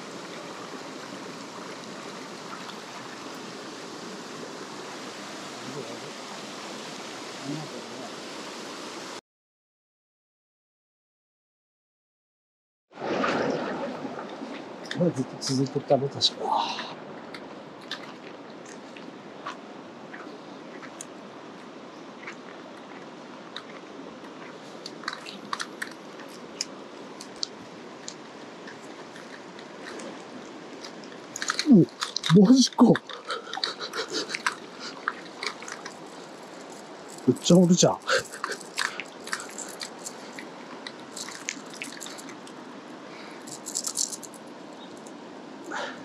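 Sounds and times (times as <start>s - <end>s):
mountain stream rushing: 0.0s - 9.2s, 13.0s - 46.0s.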